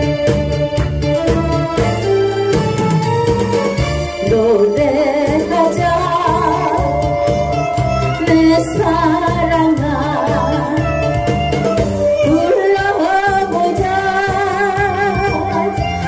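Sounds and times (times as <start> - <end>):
backing track with steady beat: 0.0 - 16.0
woman singing into microphone: 4.2 - 16.0.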